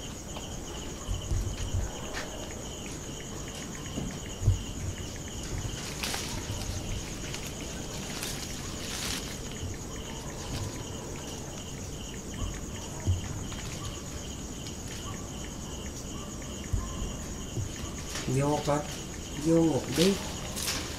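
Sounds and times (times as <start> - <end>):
crickets chirping: 0.0 - 20.9
low thumps: 3.8 - 10.9.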